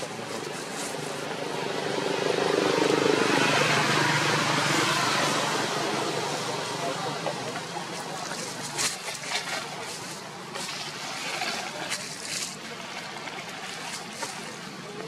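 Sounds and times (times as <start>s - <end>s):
crisp rustles: 0.0s - 1.3s
outdoor background noise: 0.0s - 15.0s.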